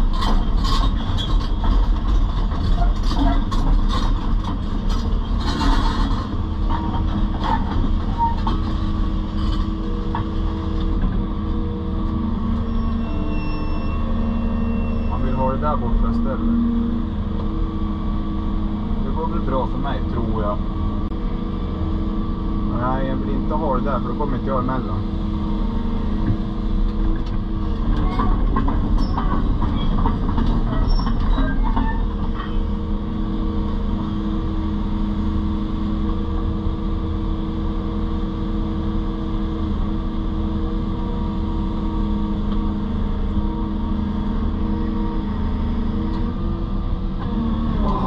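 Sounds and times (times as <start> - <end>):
excavator diesel engine running: 0.0 - 48.0
squeaks: 12.6 - 15.6, 29.0 - 30.0, 30.7 - 32.6.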